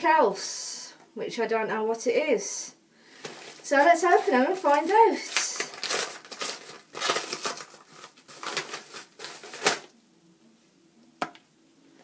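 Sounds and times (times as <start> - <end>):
paper wrapping tearing and rustling: 3.2 - 9.9.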